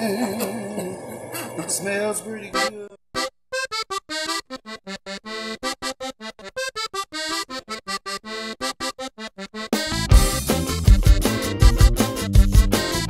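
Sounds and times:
staccato melody line: 0:03.2 - 0:13.0
zydeco band with bass and drums: 0:09.6 - 0:13.0.

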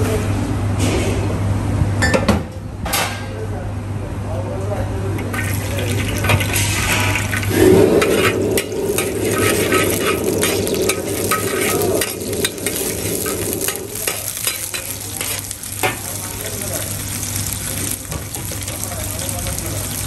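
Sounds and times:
steady low hum: 0:03.4 - 0:19.2
cabbage sizzling in hot oil: 0:05.4 - 0:20.0
metal ladle scraping wok: 0:05.9 - 0:16.2.

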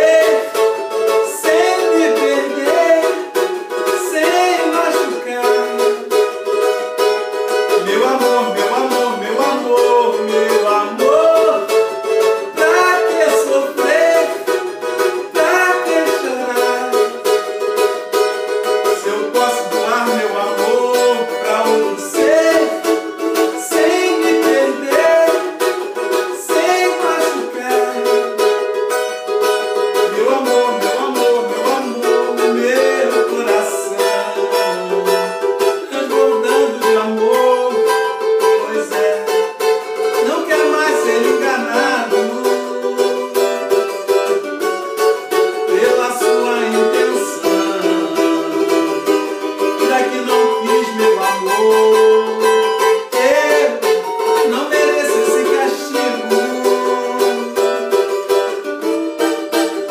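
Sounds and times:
man singing: 0:00.0 - 0:06.4, 0:07.5 - 0:17.6, 0:18.3 - 0:44.4, 0:45.3 - 0:58.8
small guitar strummed: 0:00.0 - 0:59.9.

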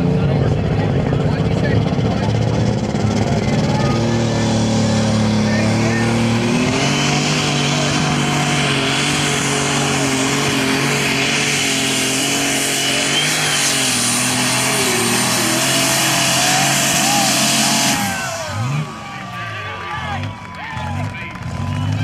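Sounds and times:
diesel engine at full load: 0:00.0 - 0:22.0
high turbo whine: 0:00.0 - 0:22.0.

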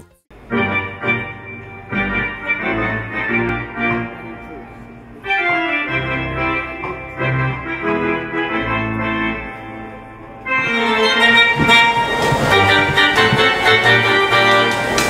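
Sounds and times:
organ chords over bass line: 0:00.3 - 0:15.0.

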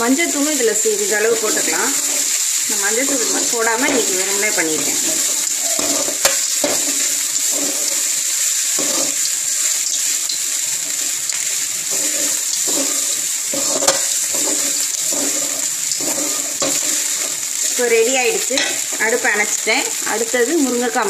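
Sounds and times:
steady hiss: 0:00.0 - 0:21.0
spoon scraping rice in pan: 0:01.4 - 0:09.3, 0:11.9 - 0:17.8.

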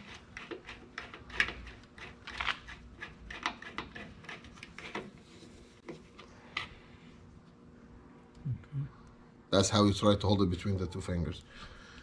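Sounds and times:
screwdriver clicks and scrapes: 0:00.0 - 0:05.2.

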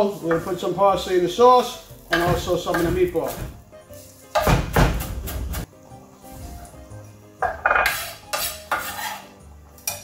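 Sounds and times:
soft background music: 0:00.0 - 0:10.0
knife scraping a board: 0:07.8 - 0:09.3.

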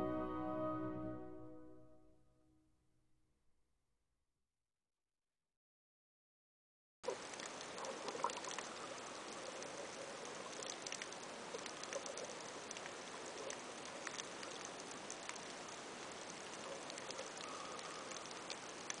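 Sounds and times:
small sharp clicks and crackles: 0:07.0 - 0:19.0
underwater hiss: 0:16.6 - 0:18.7.

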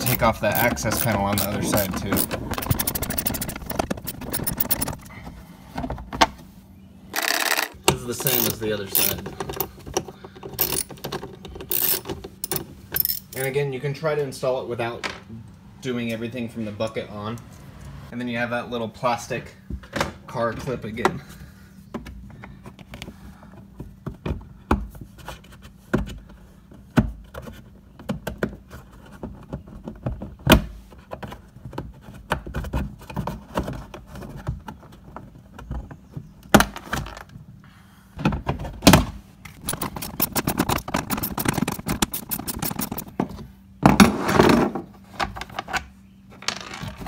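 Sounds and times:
hand tools clicking and rattling: 0:00.0 - 0:05.1, 0:07.2 - 0:13.5, 0:39.5 - 0:43.2.

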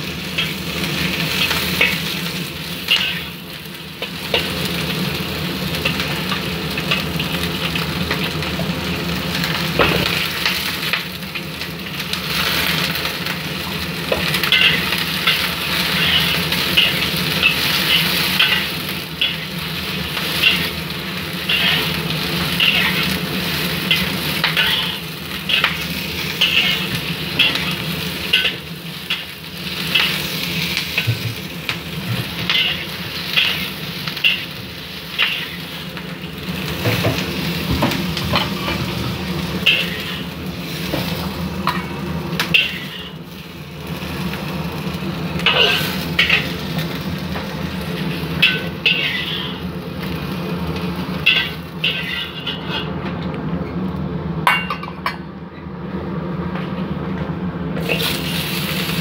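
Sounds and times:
onions sizzling in oil: 0:00.0 - 0:53.2, 0:57.8 - 0:59.0
spatula scraping a wok: 0:14.2 - 0:20.8, 0:21.4 - 0:31.3, 0:32.0 - 0:35.9, 0:38.4 - 0:41.3, 0:42.4 - 0:43.3, 0:45.4 - 0:46.9, 0:47.8 - 0:49.7, 0:51.2 - 0:53.0.

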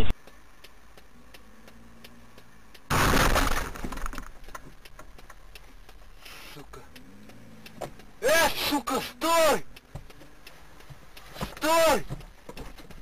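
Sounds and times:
car crash impact: 0:02.9 - 0:04.3.

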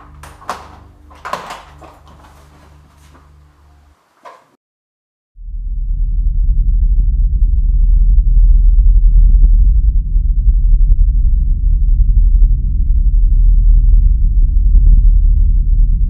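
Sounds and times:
deep rumbling drone: 0:05.4 - 0:16.0.

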